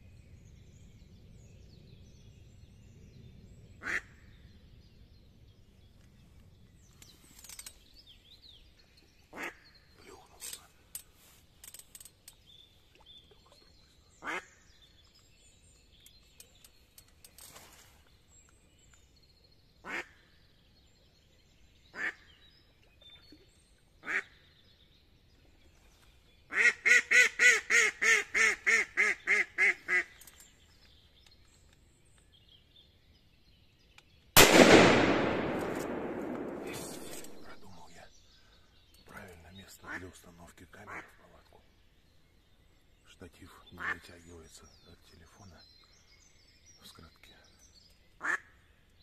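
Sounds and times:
loud bang with echo: 34.4s - 37.6s.

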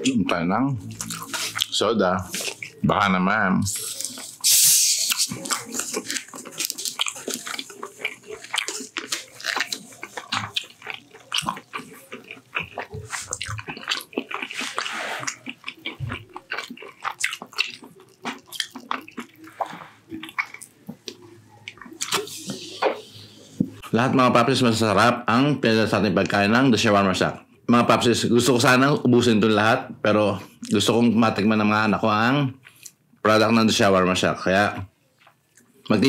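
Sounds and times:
man gulping and swallowing: 5.1s - 23.8s.

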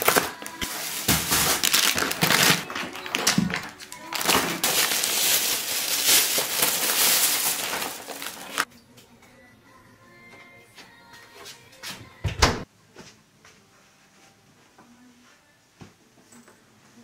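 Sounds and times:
grocery bags rustling: 0.0s - 8.7s.

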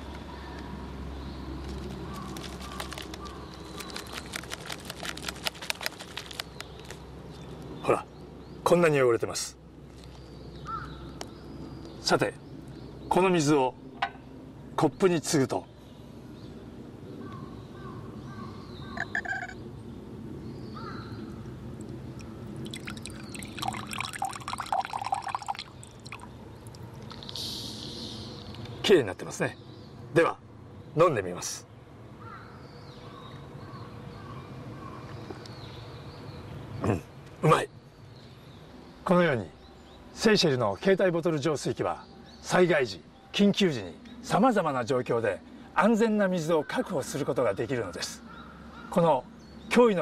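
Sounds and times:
low outdoor rumble: 15.7s - 31.2s
water trickling into a glass: 22.2s - 27.3s
short bird call: 27.2s - 28.5s.

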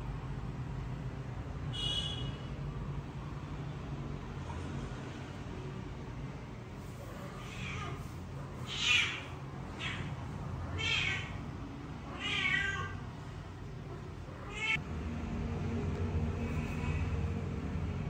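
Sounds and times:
cat meowing: 7.3s - 11.4s, 12.1s - 13.0s, 14.4s - 14.8s.

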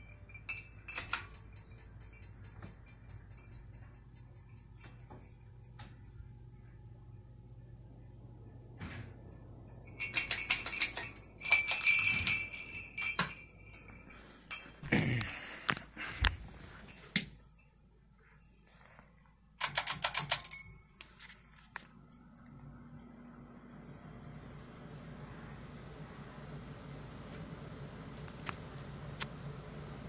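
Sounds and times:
ceiling fans humming: 0.0s - 30.0s
rapid clicking and rattling: 0.9s - 6.6s, 9.8s - 13.4s, 19.6s - 20.6s.

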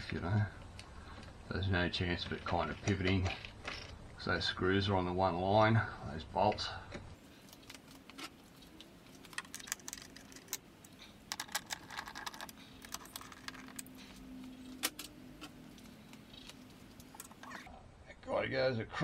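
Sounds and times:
faint steady hum: 0.0s - 19.0s
small metal parts clicking: 9.2s - 14.0s.

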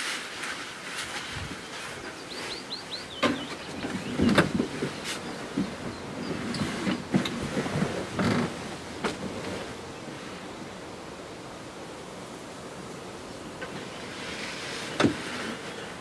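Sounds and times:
close knocks and rustles: 0.0s - 9.8s, 13.6s - 15.9s
wind hiss: 0.0s - 16.0s.

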